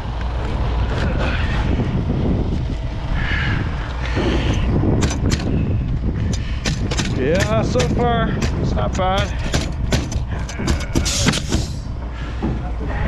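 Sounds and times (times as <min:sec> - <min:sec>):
wind rumbling on microphone: 0:00.0 - 0:13.0
nail gun firing: 0:06.6 - 0:08.0, 0:09.5 - 0:11.7.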